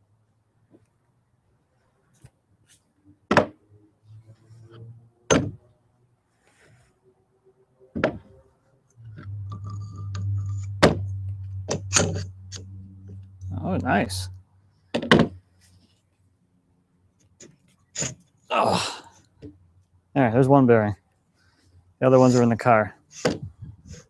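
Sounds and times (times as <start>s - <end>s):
low hum: 8.9s - 14.6s.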